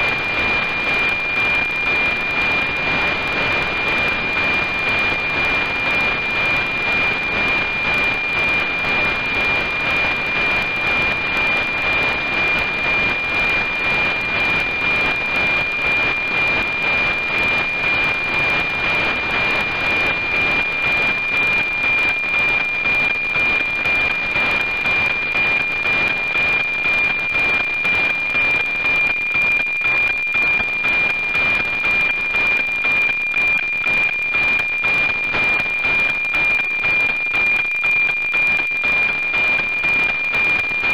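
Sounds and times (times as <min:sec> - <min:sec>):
pulsing satellite signal whistle: 0:00.0 - 0:40.9.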